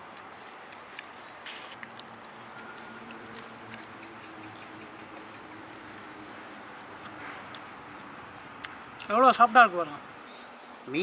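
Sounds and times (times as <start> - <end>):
faint biting and chewing: 0.1 - 6.2.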